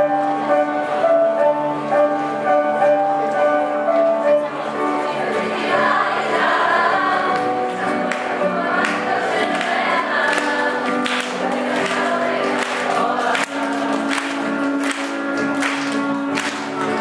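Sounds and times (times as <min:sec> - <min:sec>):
choir singing long notes: 0:05.1 - 0:15.7.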